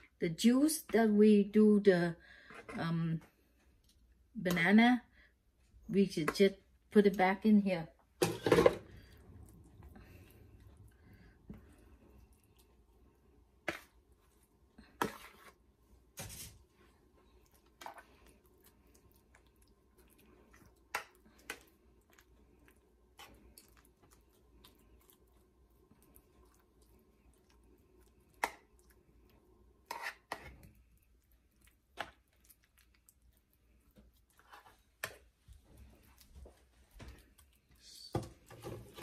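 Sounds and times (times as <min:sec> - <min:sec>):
metal spoon scraping a bowl: 0:29.8 - 0:30.6.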